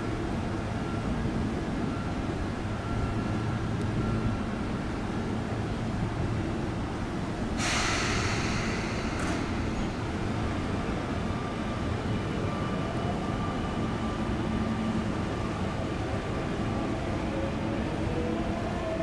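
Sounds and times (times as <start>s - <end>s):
train rumble: 0.0s - 19.0s
train air brake hiss: 7.6s - 10.0s.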